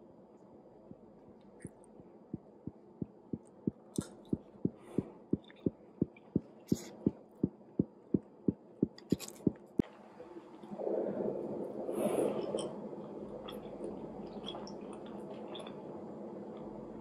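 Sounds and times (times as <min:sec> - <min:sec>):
soft low thumps: 0:02.3 - 0:09.7.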